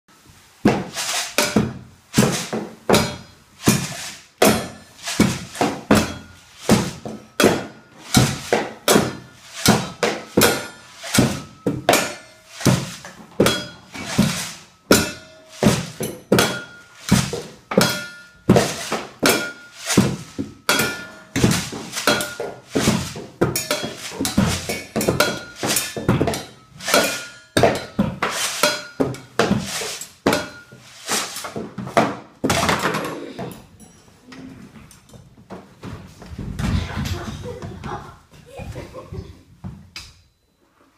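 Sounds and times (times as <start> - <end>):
children drumming on buckets and cans: 20.0 - 27.0.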